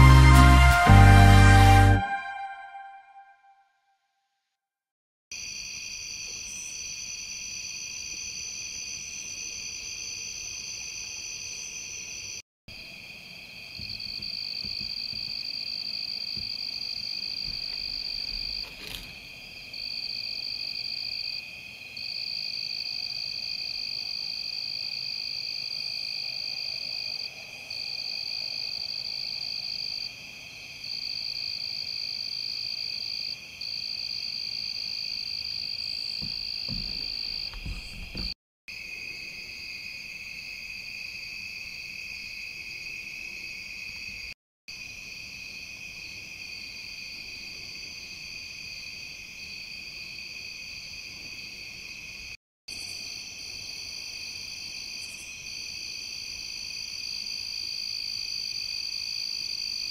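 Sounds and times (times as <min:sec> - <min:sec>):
insects trilling: 0:05.4 - 0:30.2.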